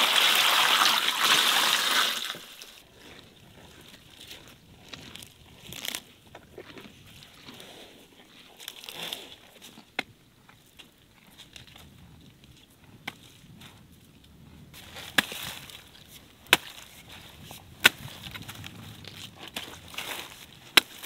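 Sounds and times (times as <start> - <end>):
axe chopping cabbage stalks: 14.8 - 15.8, 16.4 - 21.0.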